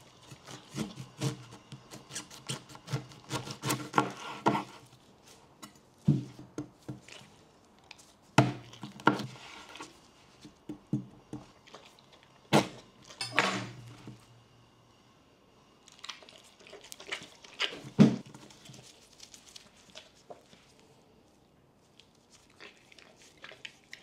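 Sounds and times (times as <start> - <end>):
knife crunching through pineapple: 0.0 - 5.4.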